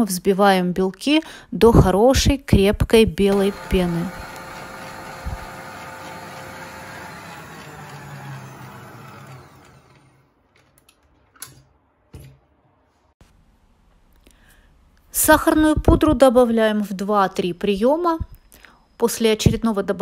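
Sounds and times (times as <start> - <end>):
stand mixer whisking: 3.3 - 10.2.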